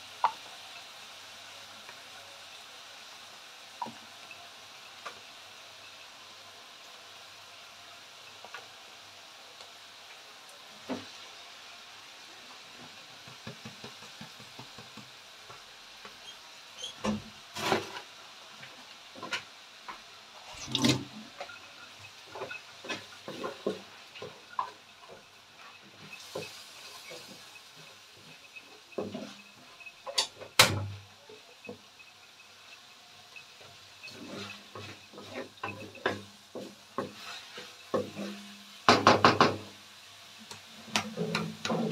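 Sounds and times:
food sizzling in a wok: 0.0 - 41.9
wooden spatula scraping a pan: 16.9 - 18.1, 22.3 - 24.8, 34.0 - 38.5.

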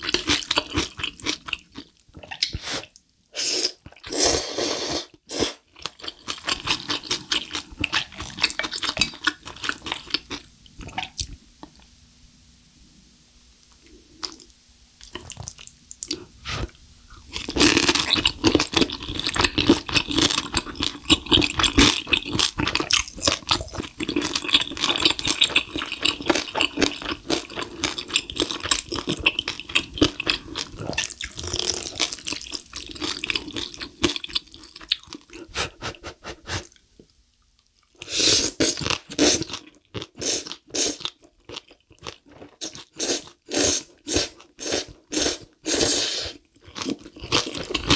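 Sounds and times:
slurping and chewing noodles: 0.0 - 11.4, 13.8 - 36.8, 37.7 - 47.9.

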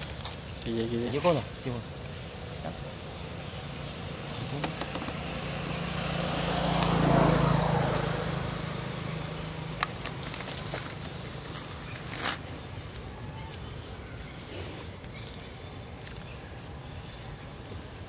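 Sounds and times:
motor vehicle passing by: 2.6 - 12.6.

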